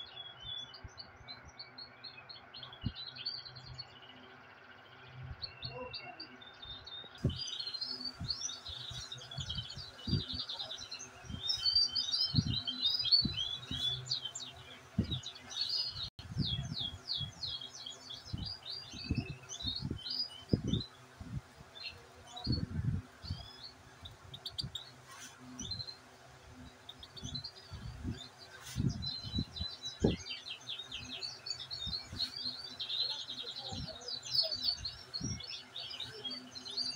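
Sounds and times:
finches singing and twittering: 0.0s - 36.9s
dull low thumps: 15.0s - 15.3s.

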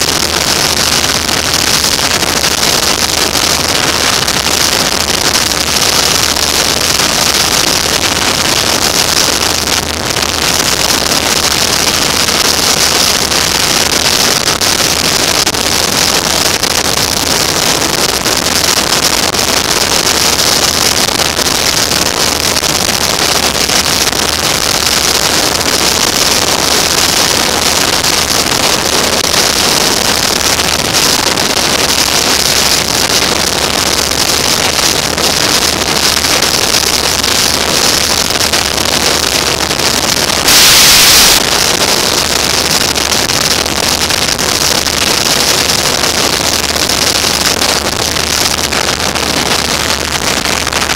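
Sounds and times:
wind rushing over microphone: 0.0s - 49.6s
road noise: 40.4s - 42.0s.

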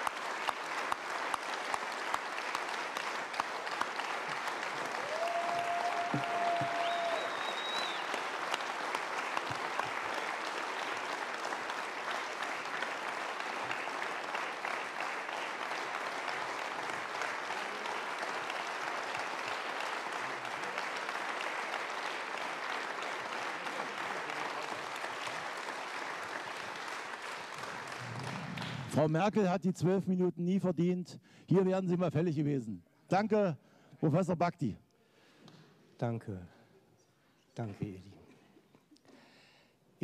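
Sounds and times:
audience applauding: 0.0s - 29.2s.

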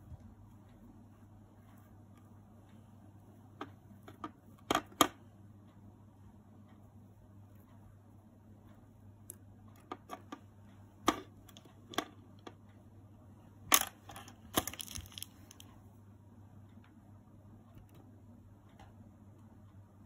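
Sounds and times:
faint low hum: 0.0s - 20.0s
small objects clicking on tabletop: 13.7s - 15.7s.

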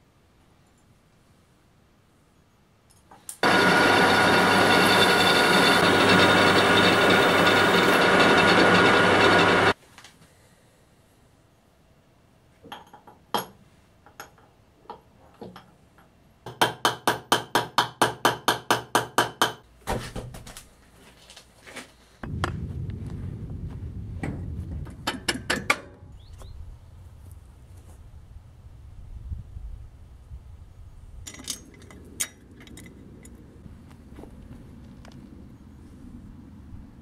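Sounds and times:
power tool running: 3.4s - 9.8s
small metal parts clattering: 31.2s - 33.4s.

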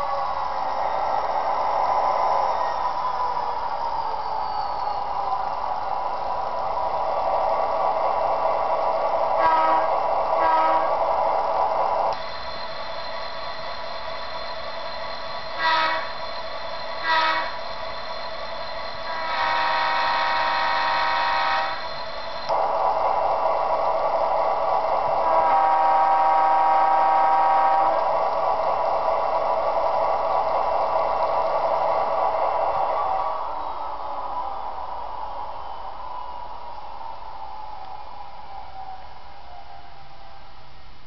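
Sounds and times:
model locomotive engine drone: 0.0s - 41.0s
locomotive horn toots: 9.4s - 11.0s, 15.6s - 16.2s, 17.0s - 17.6s, 19.1s - 21.8s, 25.2s - 28.0s.

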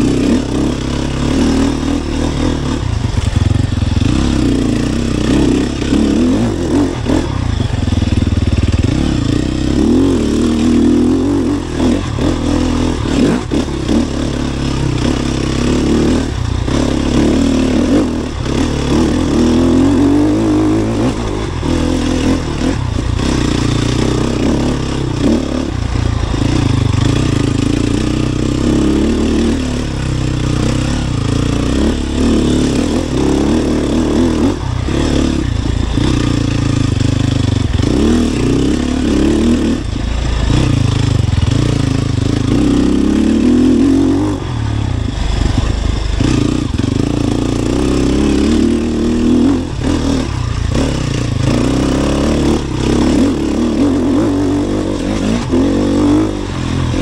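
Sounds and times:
light rattling from bike: 0.0s - 57.0s
motorcycle engine revving: 0.0s - 57.0s.

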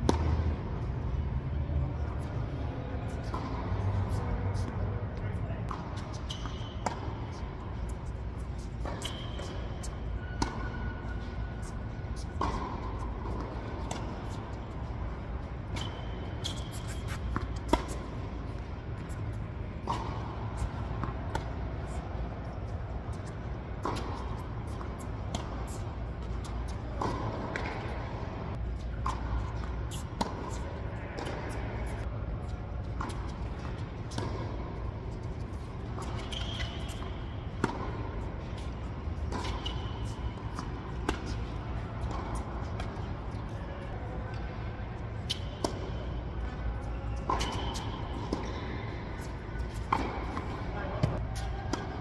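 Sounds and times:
racket hitting ball: 5.7s - 22.6s, 23.8s - 28.3s, 28.9s - 32.0s, 32.9s - 43.6s, 45.2s - 46.0s, 47.2s - 52.0s.

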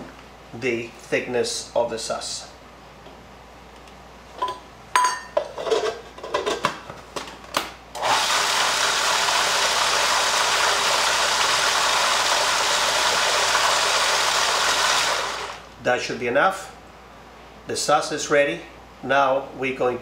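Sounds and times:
food processor motor running: 8.0s - 15.7s.

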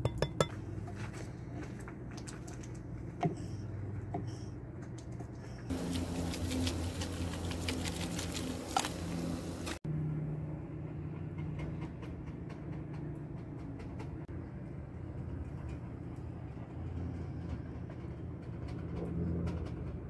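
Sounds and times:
low hum: 5.6s - 12.0s.

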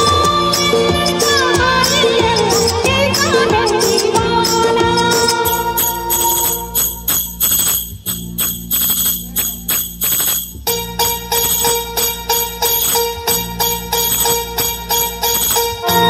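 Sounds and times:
held chord notes: 0.0s - 16.0s
percussion beat: 0.0s - 16.0s
high jingling: 3.9s - 16.0s.

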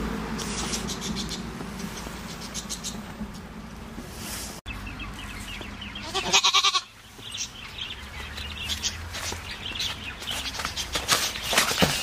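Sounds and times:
goat bleating: 6.0s - 6.9s.

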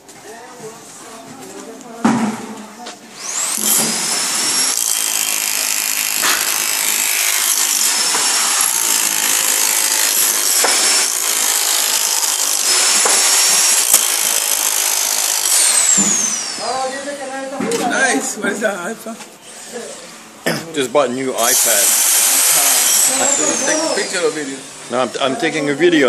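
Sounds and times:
power tool whining: 3.1s - 17.2s, 21.4s - 25.6s.

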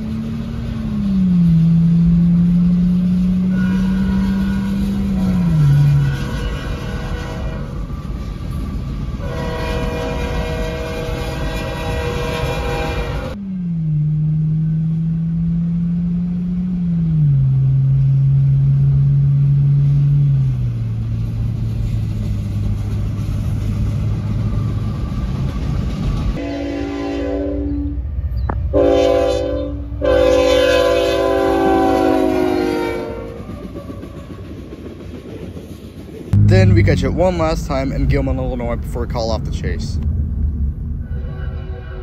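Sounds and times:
low engine drone: 0.0s - 6.4s, 13.1s - 25.0s, 36.3s - 41.0s
train rumble: 0.0s - 42.0s
locomotive air horn blasts: 1.4s - 8.0s, 9.2s - 13.4s, 26.4s - 28.0s, 28.7s - 33.5s, 41.0s - 42.0s.

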